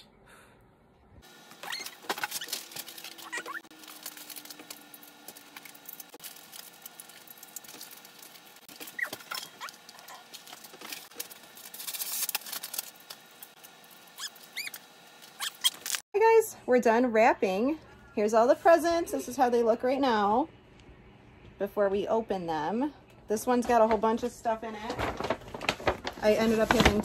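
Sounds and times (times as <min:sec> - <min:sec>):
paper rustling and crinkling: 0:01.3 - 0:13.6, 0:23.6 - 0:27.0
short squeaks: 0:01.6 - 0:03.7, 0:14.2 - 0:16.0.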